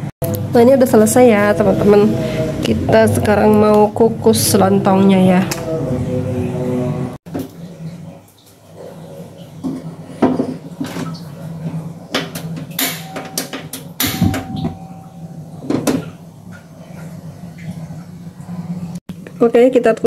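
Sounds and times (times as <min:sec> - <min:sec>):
metal pot clanking on stove: 0:12.2 - 0:16.1.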